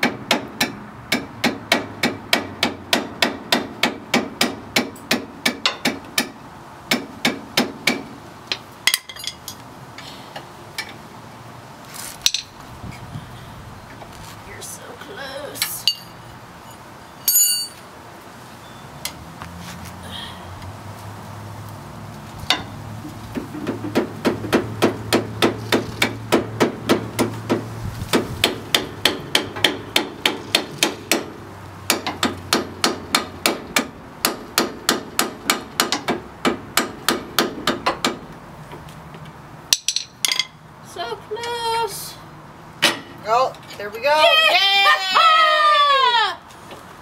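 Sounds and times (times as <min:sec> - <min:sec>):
metal clinks: 0:08.9 - 0:09.6, 0:15.8 - 0:17.9.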